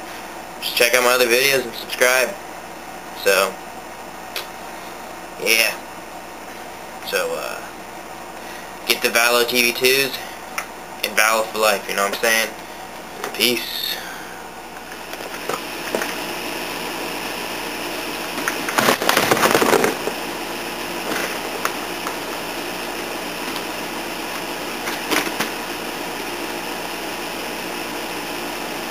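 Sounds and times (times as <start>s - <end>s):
steady machine hum: 0.0s - 28.9s
rustling and knocking handling noise: 18.3s - 20.2s, 21.0s - 22.4s, 24.3s - 25.6s.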